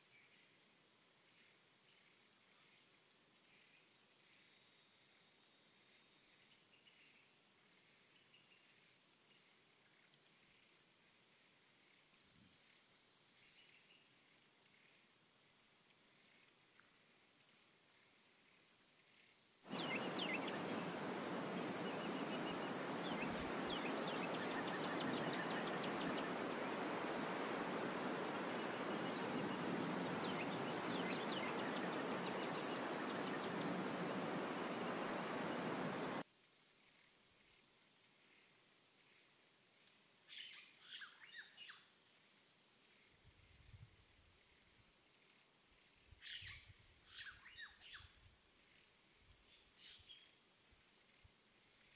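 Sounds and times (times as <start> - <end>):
dense forest hiss: 0.0 - 51.9
bird chirps: 19.7 - 36.2.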